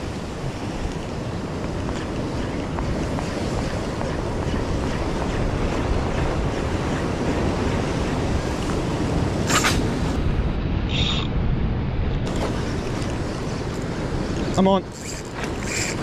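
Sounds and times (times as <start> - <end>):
ocean swell washing over rocks: 0.0 - 10.9
wind buffeting microphone: 0.0 - 16.0.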